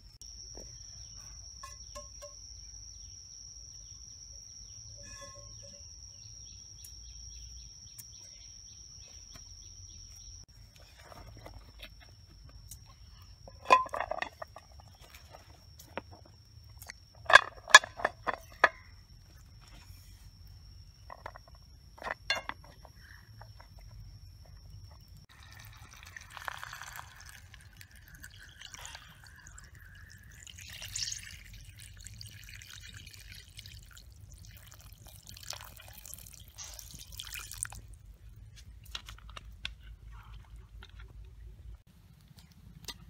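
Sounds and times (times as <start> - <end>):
water pouring into a pan: 25.3 - 37.8
water dripping: 25.3 - 37.9.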